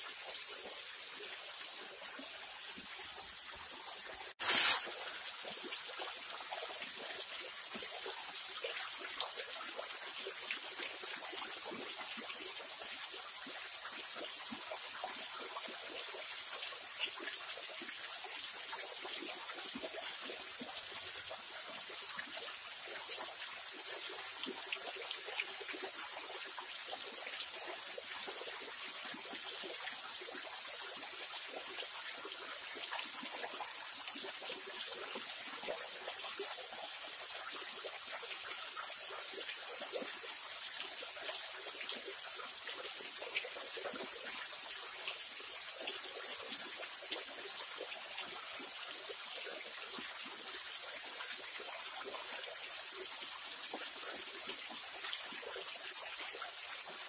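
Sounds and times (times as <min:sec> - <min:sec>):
waterfall hissing and trickling: 0:00.0 - 0:57.0.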